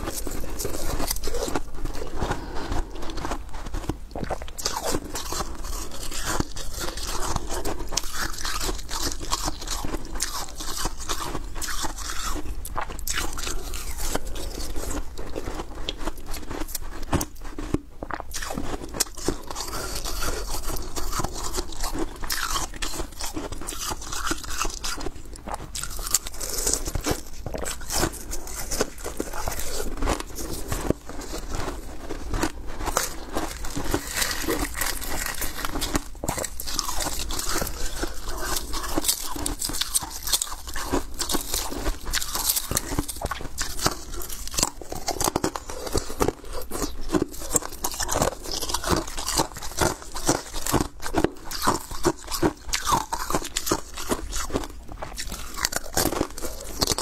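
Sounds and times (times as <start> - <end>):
ice being chewed: 0.0 - 57.0
ice shards crackling: 32.9 - 41.7.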